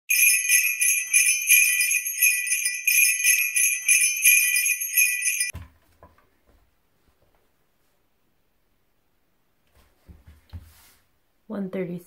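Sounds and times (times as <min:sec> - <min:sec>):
sleigh bells jingling: 0:00.1 - 0:05.5.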